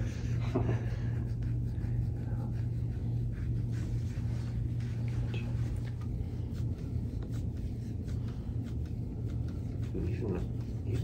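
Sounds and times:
hands rubbing oiled skin: 0.0 - 11.0
steady low hum: 0.0 - 11.0.

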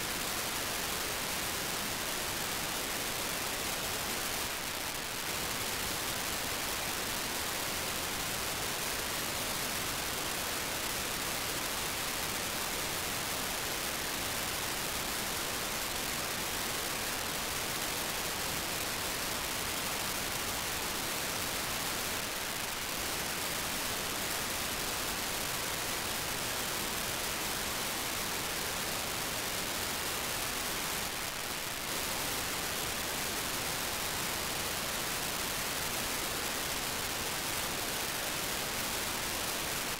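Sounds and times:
radio static hiss: 0.0 - 39.9.

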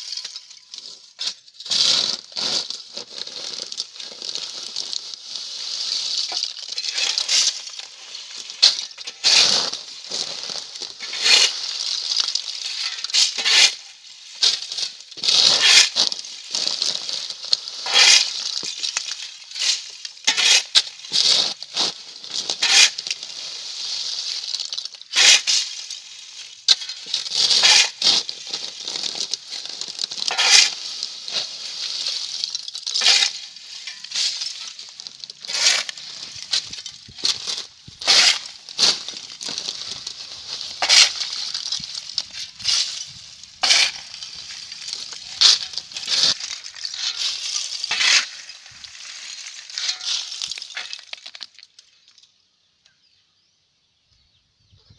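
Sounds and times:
shovel scraping through charcoal: 0.0 - 51.6
charcoal pieces clinking: 24.5 - 51.9.

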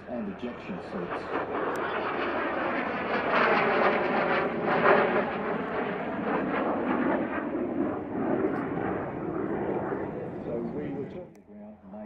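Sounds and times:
jet aircraft rushing overhead: 0.0 - 11.3.

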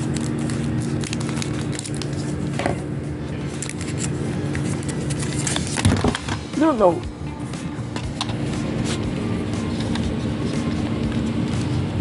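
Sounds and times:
foil wrapper crinkling: 0.0 - 6.5
steady low hum: 0.0 - 12.0.

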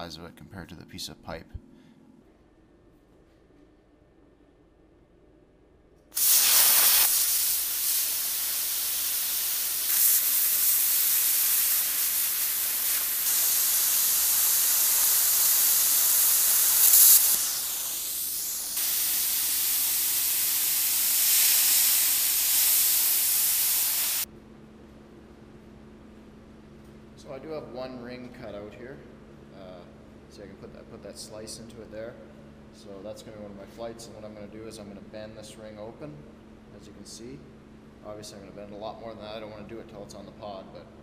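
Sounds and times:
plasma cutter hissing: 6.2 - 24.3.

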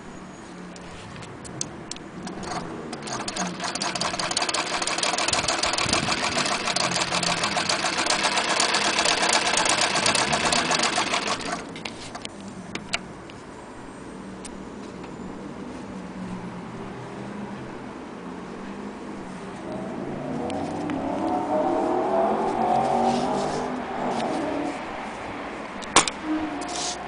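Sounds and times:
sewing machine stitching: 2.2 - 12.2.

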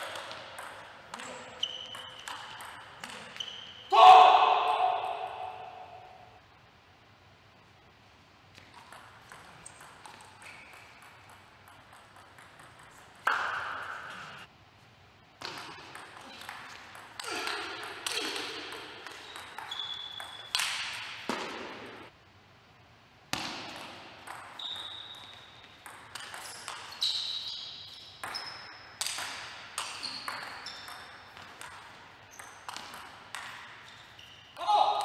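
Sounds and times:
table tennis ball hits: 0.0 - 3.4, 8.6 - 14.4, 15.4 - 22.1, 23.3 - 27.0, 28.2 - 33.9.

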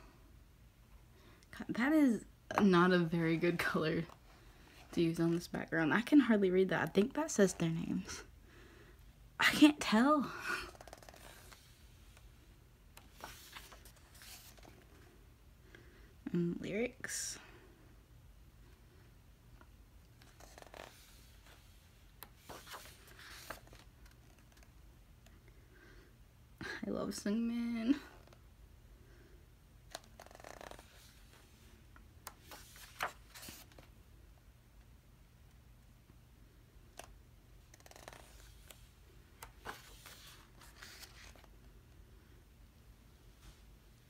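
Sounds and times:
low room hum: 0.0 - 44.0
glossy pages turning: 10.7 - 11.8, 13.0 - 14.9, 20.2 - 24.7, 29.9 - 31.4, 32.3 - 33.9, 37.7 - 38.8, 39.4 - 41.5.

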